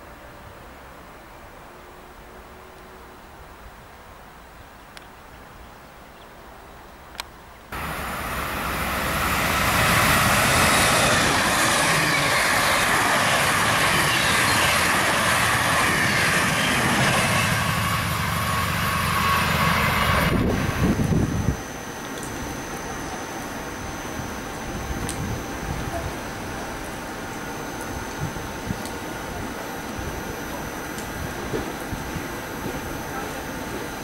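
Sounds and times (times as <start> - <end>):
train passing at speed: 0.0 - 4.5, 7.7 - 34.0
faint station background: 6.6 - 34.0
click: 7.1 - 7.3.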